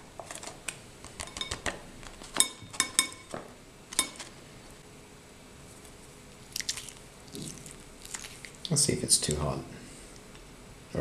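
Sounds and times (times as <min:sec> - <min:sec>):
spoon clinking on ceramic plate: 0:01.2 - 0:01.7, 0:02.4 - 0:04.3.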